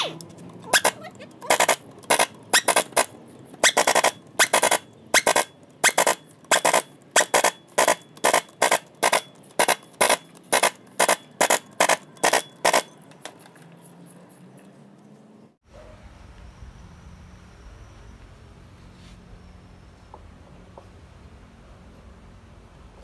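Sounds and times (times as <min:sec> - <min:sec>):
pneumatic impact wrench hammering: 0:00.8 - 0:13.0.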